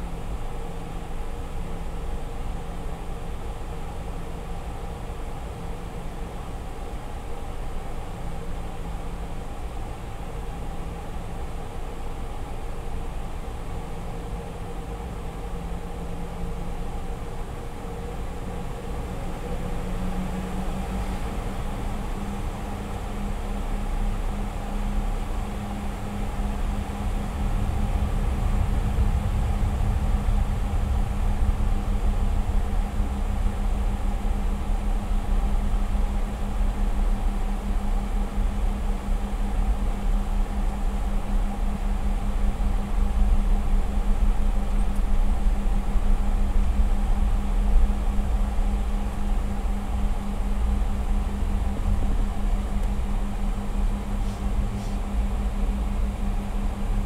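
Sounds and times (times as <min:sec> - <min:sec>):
low rumble of taxiing aircraft: 0:00.0 - 0:57.0
jet engines humming: 0:20.4 - 0:57.0.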